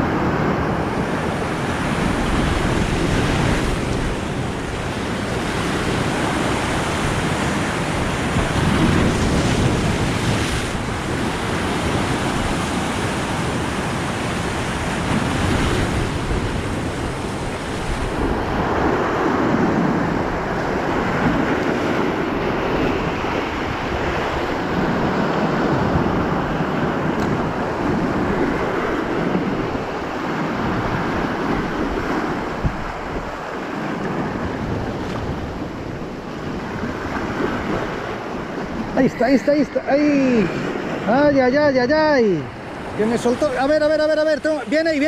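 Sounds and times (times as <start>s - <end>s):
surf breaking on rocky shore: 0.0s - 45.0s
wind buffeting microphone: 0.0s - 45.0s.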